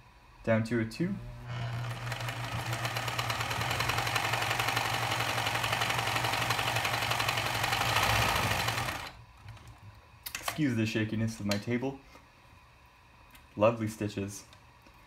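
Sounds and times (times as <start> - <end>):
sewing machine running: 1.4 - 9.2.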